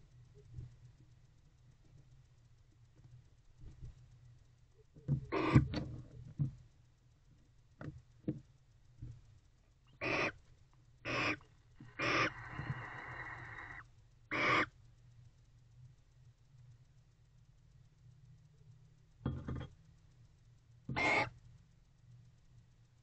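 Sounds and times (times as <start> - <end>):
barn owl raspy calls: 5.2 - 5.8, 9.9 - 10.4, 11.0 - 14.8, 20.9 - 21.4
owl hissing: 5.3 - 5.7, 9.9 - 10.4, 11.0 - 14.7, 20.9 - 21.4.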